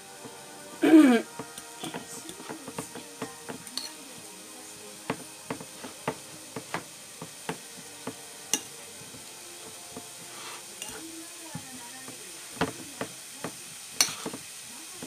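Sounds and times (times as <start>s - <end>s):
fork clinking against ceramic bowl: 8.5s - 8.8s.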